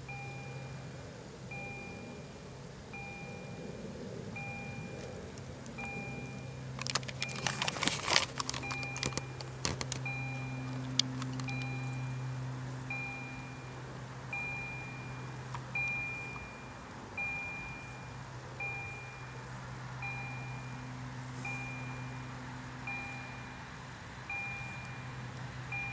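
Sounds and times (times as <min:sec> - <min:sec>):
steady low hum: 0:00.0 - 0:25.9
sharp clicks and crackles: 0:06.7 - 0:12.1.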